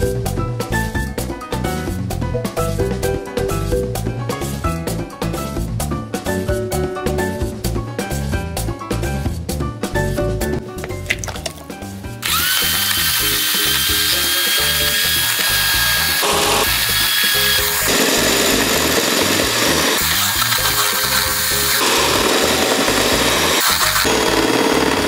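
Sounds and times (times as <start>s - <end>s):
electric hand mixer whining: 12.2s - 25.0s.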